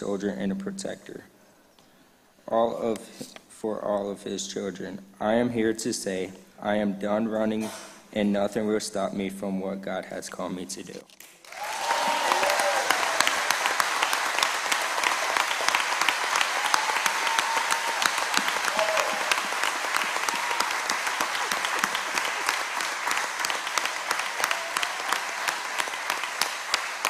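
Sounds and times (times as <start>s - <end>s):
congregation applauding: 11.2s - 27.0s.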